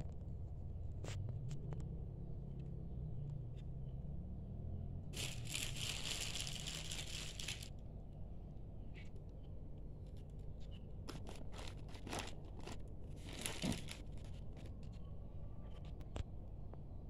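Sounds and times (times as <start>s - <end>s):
plastic film crinkling: 5.2s - 7.8s, 11.1s - 14.7s.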